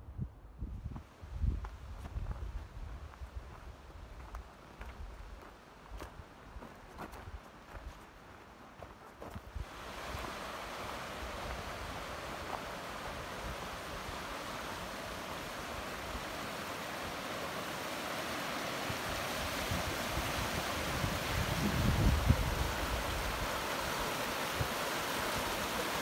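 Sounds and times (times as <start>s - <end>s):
flowing water rushing: 9.6s - 26.0s.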